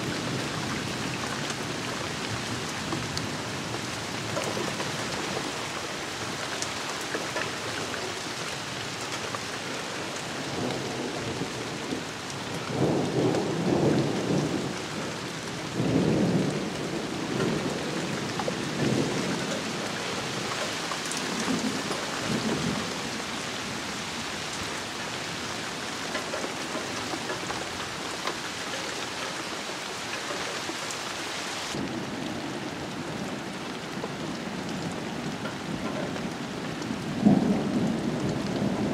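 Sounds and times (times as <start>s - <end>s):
steady rain falling: 0.0s - 38.9s
thunder rumbling: 9.9s - 29.6s, 31.7s - 38.9s.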